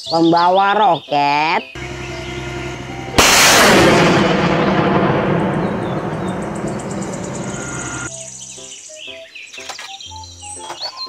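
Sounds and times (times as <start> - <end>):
rocket launch blast: 1.8 - 8.1
rocket rushing noise: 1.8 - 8.1.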